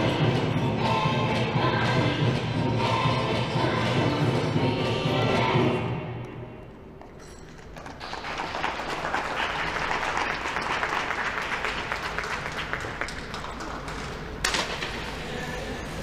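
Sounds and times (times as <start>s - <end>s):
audience applauding: 7.8s - 14.4s.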